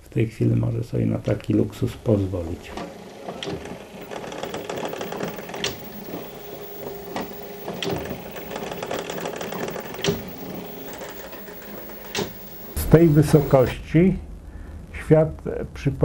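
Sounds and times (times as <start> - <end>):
small machine humming and ticking: 1.8 - 13.7
sharp clicks: 3.4 - 13.7.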